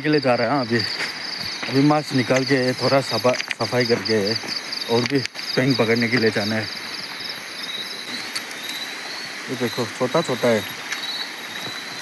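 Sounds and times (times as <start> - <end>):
man talking: 0.0 - 1.0, 1.6 - 6.8, 9.5 - 10.7
insects trilling: 0.0 - 12.0.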